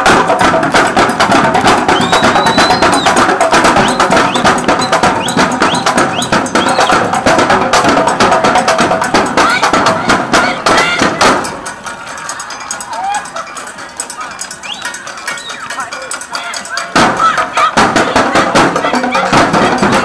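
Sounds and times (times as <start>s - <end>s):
snare and bass drum line: 0.0s - 20.0s.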